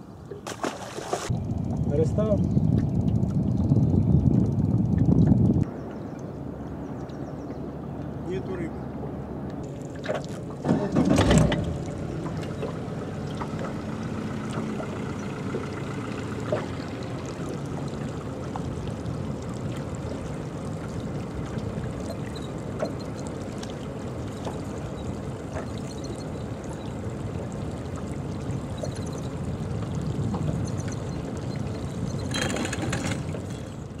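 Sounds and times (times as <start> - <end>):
water washing around boat: 0.0 - 34.0.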